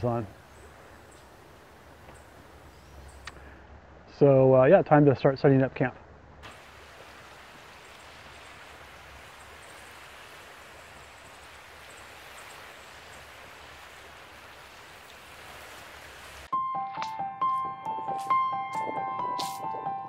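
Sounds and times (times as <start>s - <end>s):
outdoor background hiss: 0.0s - 16.5s
piano music: 16.5s - 20.0s.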